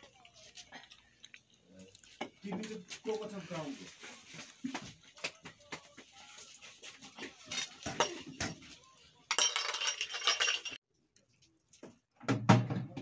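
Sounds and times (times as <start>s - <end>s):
metal pots clinking: 9.3s - 10.8s.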